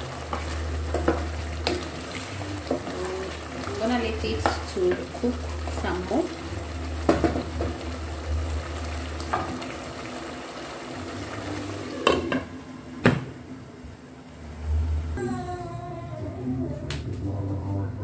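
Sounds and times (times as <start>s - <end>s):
sauce bubbling: 0.0s - 12.5s.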